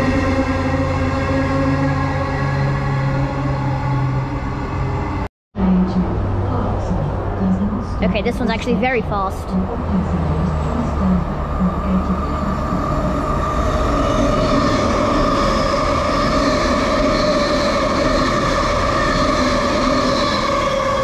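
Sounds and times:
high whine: 0.0s - 21.0s
train wheels rushing on rails: 10.5s - 21.0s.

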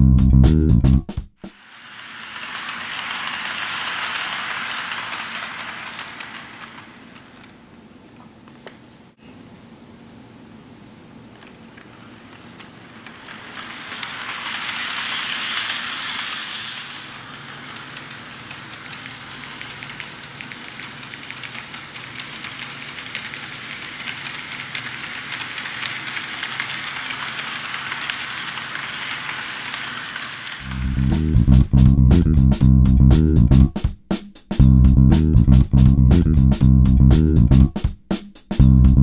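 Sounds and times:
rapid clicking: 1.4s - 7.6s, 12.3s - 31.6s
model train whirring: 1.5s - 7.8s, 11.4s - 31.4s.

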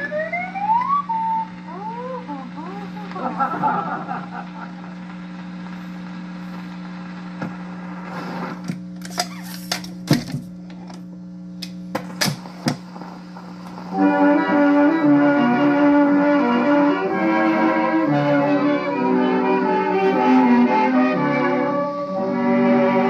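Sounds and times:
steady hum: 0.0s - 23.0s
record changer clicks and clunks: 7.4s - 13.8s.

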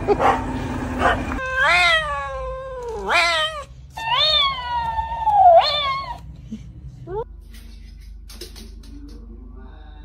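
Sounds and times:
cat meowing: 1.4s - 6.2s.

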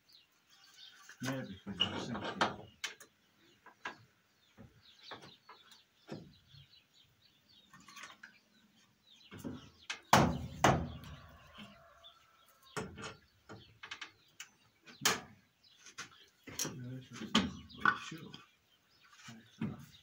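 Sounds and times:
birds chirping: 0.0s - 20.0s
knocks and rustles of work: 1.2s - 6.7s, 9.2s - 11.4s, 12.6s - 20.0s
loud thumps: 10.1s - 11.1s.

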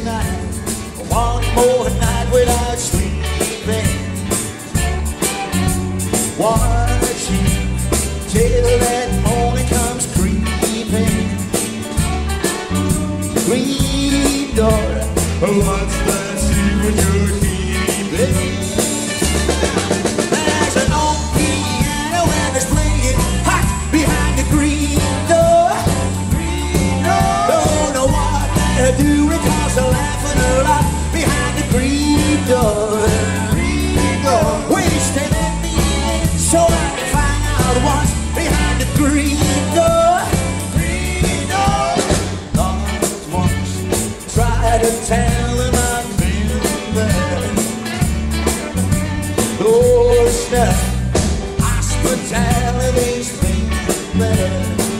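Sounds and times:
live rock band playing: 0.0s - 54.9s.

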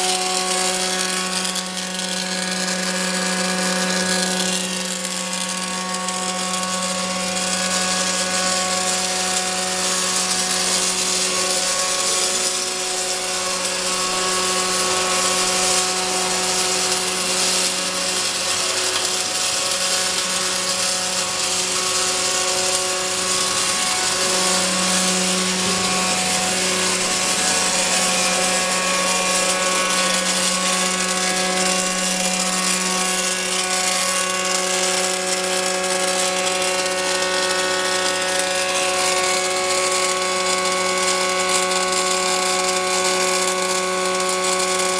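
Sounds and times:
welding arc crackling hiss: 0.0s - 44.9s
electrical hum: 4.7s - 37.0s.

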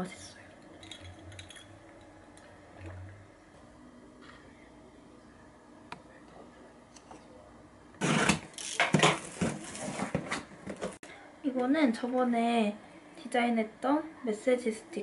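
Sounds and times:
utensils clinking on dishes: 0.7s - 2.1s
cardboard box rustling and scraping: 9.1s - 10.5s.

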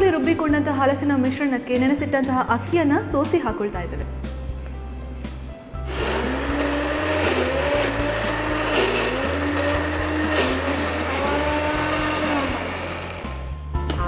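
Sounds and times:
mixer grinder motor running: 5.8s - 13.7s.

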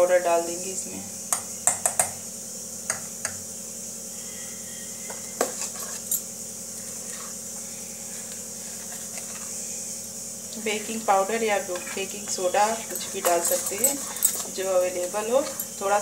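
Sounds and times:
batter being stirred: 4.7s - 9.8s, 10.5s - 16.0s
spoon clinking against steel bowl: 11.8s - 16.0s.

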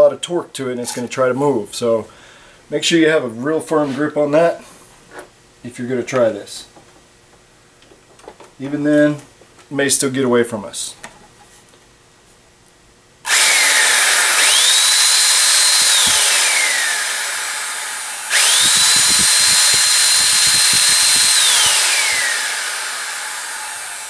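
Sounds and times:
electric motor high whine: 13.3s - 24.0s.

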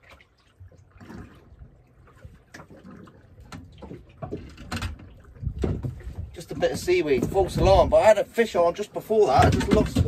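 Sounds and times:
water lapping against boat hull: 0.0s - 10.0s
knocks: 9.4s - 10.0s.

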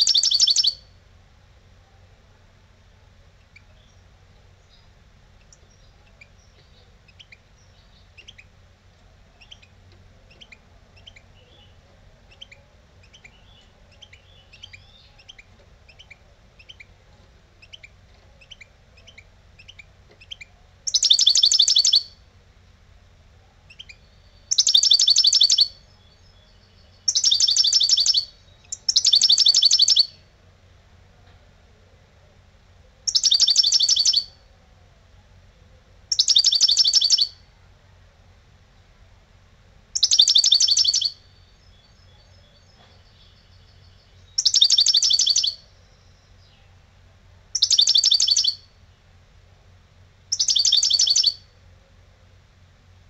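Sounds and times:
goldfinch singing: 0.0s - 0.9s, 3.4s - 8.6s, 9.3s - 17.0s, 17.6s - 22.2s, 23.7s - 30.3s, 33.1s - 34.4s, 36.1s - 37.4s, 40.0s - 46.8s, 47.5s - 48.8s, 50.3s - 51.5s.

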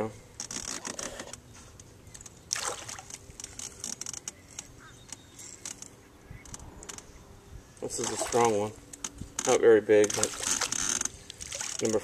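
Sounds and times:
fish splashing in water: 2.5s - 3.1s, 8.0s - 8.6s, 10.2s - 11.9s.

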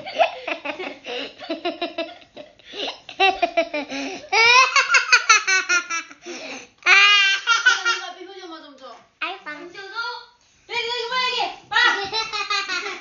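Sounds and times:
children giggling: 0.0s - 8.1s, 11.8s - 13.0s.

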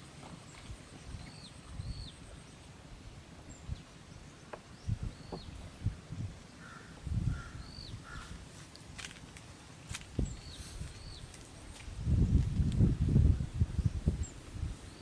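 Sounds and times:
bird chirping: 3.5s - 5.6s.

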